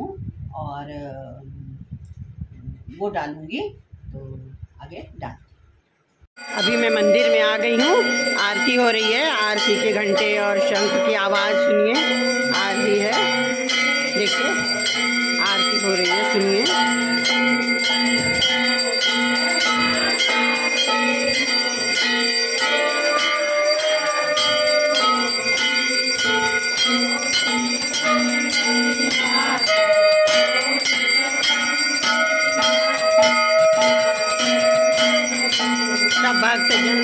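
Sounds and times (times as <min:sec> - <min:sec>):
brass bells rung rapidly: 0:06.4 - 0:37.0
conch shell blown: 0:09.4 - 0:36.1.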